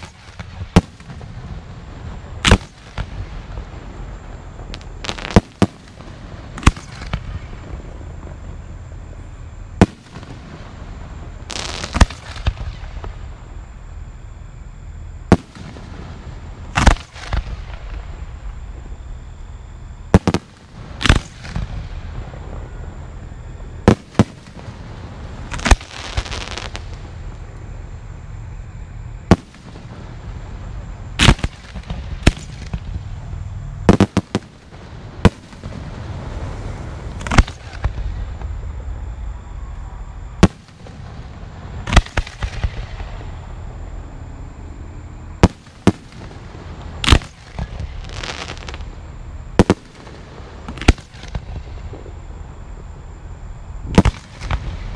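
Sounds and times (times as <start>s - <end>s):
firework stars hissing: 0.0s - 14.1s, 15.2s - 19.4s, 20.0s - 28.4s, 29.0s - 44.4s, 45.4s - 52.1s
firework shells bursting: 2.4s - 3.2s, 4.6s - 7.6s, 20.1s - 21.9s, 31.2s - 33.0s, 33.9s - 35.9s, 37.2s - 38.6s, 41.8s - 43.3s, 45.4s - 48.9s, 53.9s - 54.9s.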